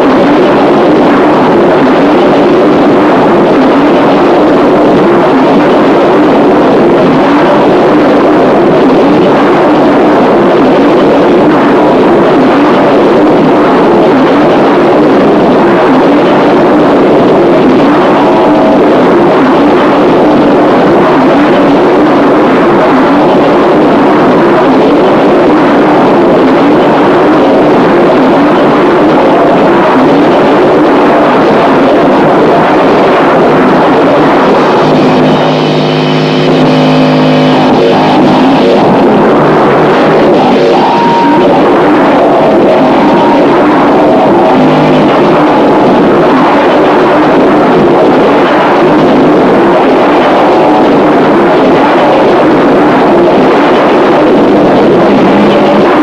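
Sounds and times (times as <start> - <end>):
harsh distorted noise music: 30.8 - 56.0
steady held tones: 33.5 - 47.4.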